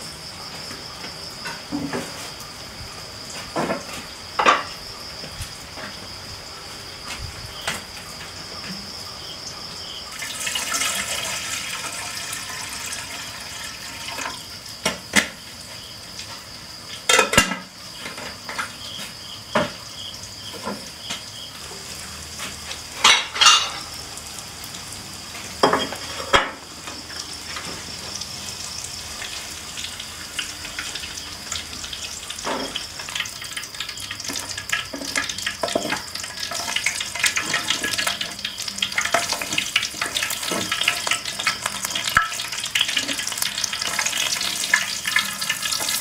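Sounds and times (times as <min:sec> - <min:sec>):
insects droning: 0:00.0 - 0:46.0
pots and pans clinking: 0:03.5 - 0:04.8, 0:17.0 - 0:18.8, 0:22.4 - 0:24.0, 0:25.6 - 0:27.8, 0:32.4 - 0:33.3, 0:34.2 - 0:46.0
liquid pouring: 0:10.2 - 0:14.3.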